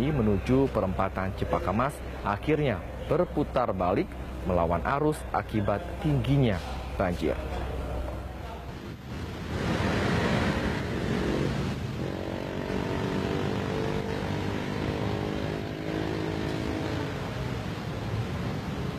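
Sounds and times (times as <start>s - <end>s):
wide rushing noise: 6.5s - 18.9s
motorcycle engines running: 9.0s - 18.9s.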